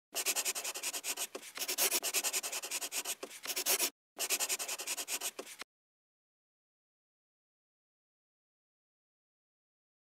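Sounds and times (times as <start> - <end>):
pencil scribbling on paper: 0.2 - 5.6.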